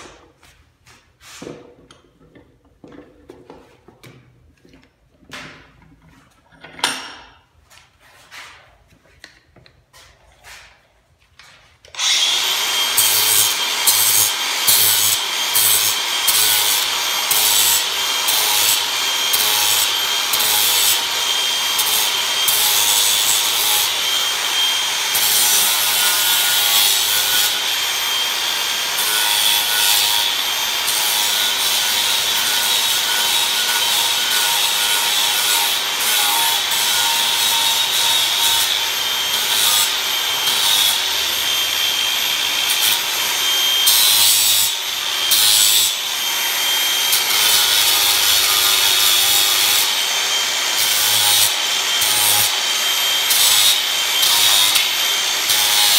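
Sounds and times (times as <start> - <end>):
angle grinder carving wood: 11.9 - 55.9.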